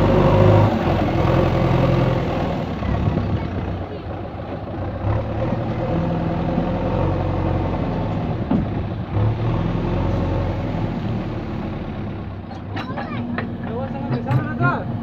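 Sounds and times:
backhoe diesel engine revving: 0.0s - 15.0s.

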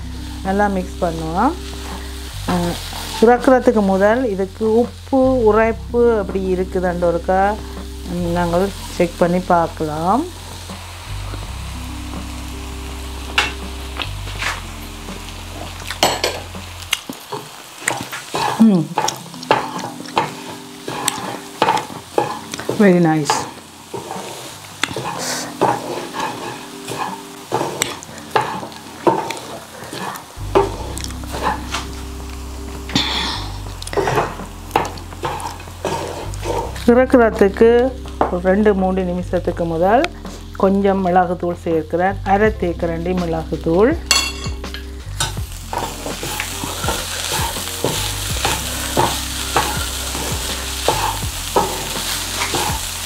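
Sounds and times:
light sizzle in pan: 0.0s - 53.0s
spatula scraping steel pan: 18.3s - 31.8s, 33.9s - 36.8s, 45.2s - 53.0s.

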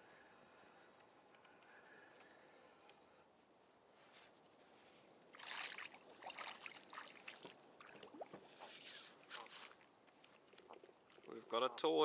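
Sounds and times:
water splashing and trickling: 5.3s - 12.0s.

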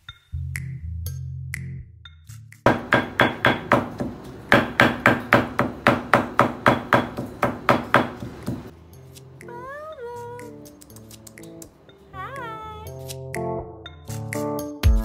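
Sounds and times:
stone pestle pounding in mortar: 2.7s - 8.7s.

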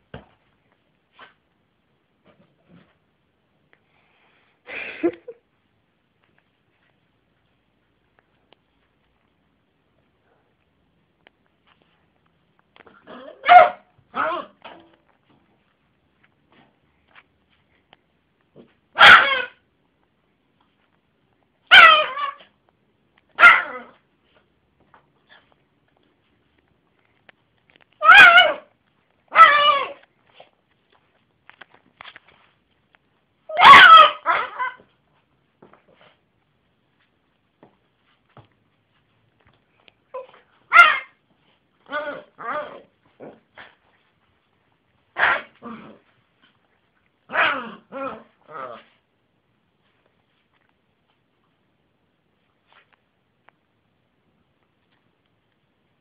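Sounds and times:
small dog barking: 13.0s - 14.6s, 19.0s - 19.6s, 21.7s - 22.4s, 23.4s - 24.0s, 28.0s - 28.7s, 33.5s - 34.8s, 40.1s - 41.2s, 45.2s - 45.7s, 47.3s - 48.8s
dog barking: 13.3s - 14.5s, 19.0s - 19.6s, 23.4s - 23.9s, 33.5s - 34.8s, 45.2s - 45.6s.

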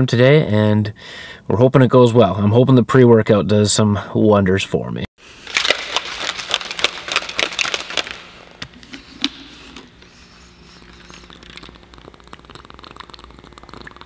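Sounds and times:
plastic shaker bottle clicking: 5.5s - 9.9s.

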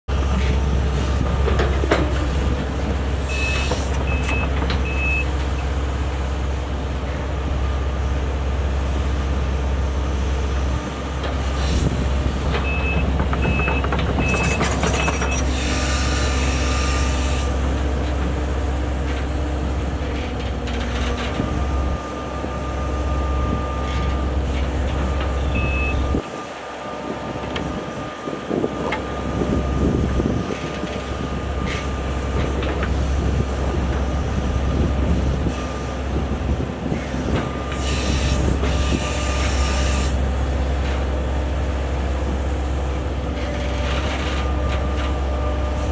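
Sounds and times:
excavator diesel engine: 0.1s - 45.9s
high warning beeps: 3.3s - 5.3s, 25.4s - 26.2s
hydraulic whine: 14.2s - 17.6s.

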